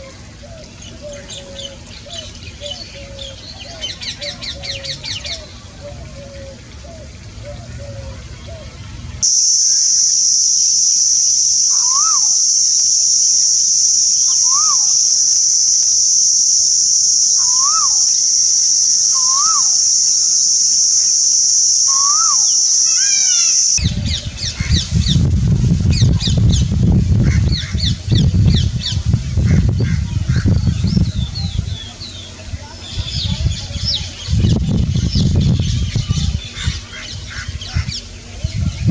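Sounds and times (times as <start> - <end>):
high-pitched insect drone: 9.2 - 23.8
koel calling: 9.2 - 23.8.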